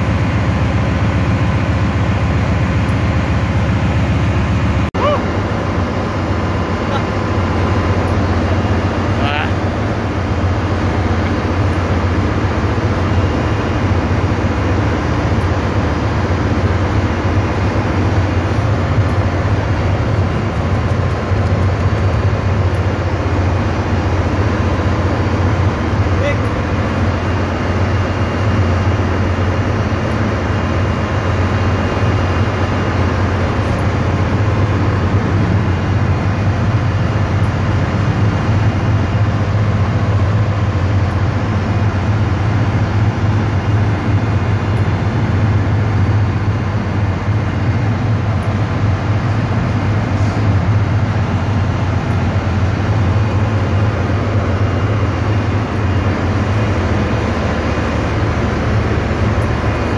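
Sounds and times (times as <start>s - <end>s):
engine room machinery drone: 0.0s - 59.9s.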